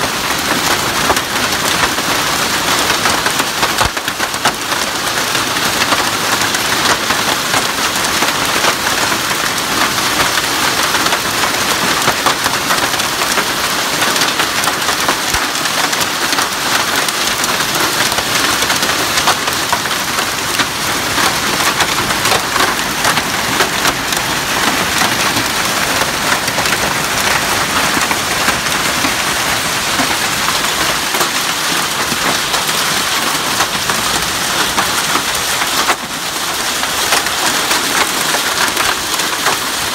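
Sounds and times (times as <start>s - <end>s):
hail and heavy rain: 0.0s - 39.9s.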